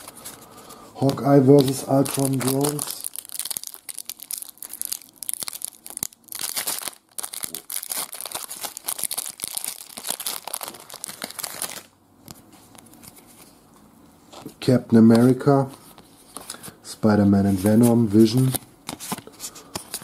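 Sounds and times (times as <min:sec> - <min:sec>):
foil wrapper tearing and crinkling: 0:01.0 - 0:11.9.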